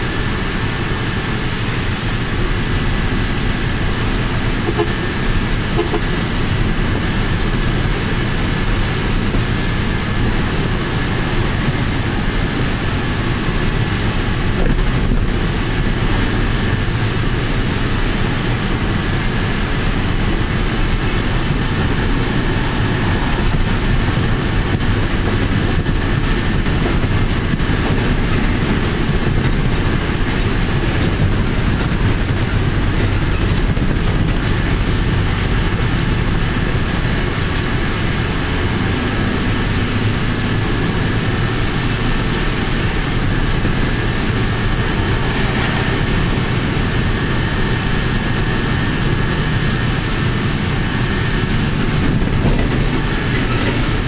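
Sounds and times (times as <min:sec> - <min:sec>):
road noise: 0:00.0 - 0:54.0
wind rush on microphone: 0:00.0 - 0:54.0.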